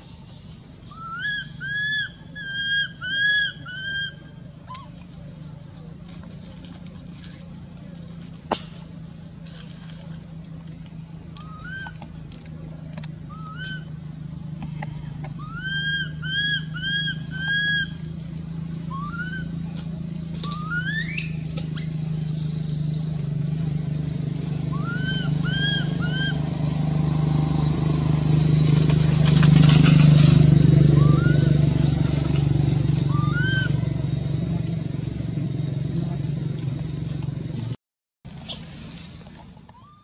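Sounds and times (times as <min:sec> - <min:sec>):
low engine drone: 0:00.0 - 0:40.0
infant monkey crying: 0:00.9 - 0:04.9, 0:15.4 - 0:17.9, 0:24.7 - 0:26.4, 0:31.0 - 0:31.5, 0:33.1 - 0:33.8.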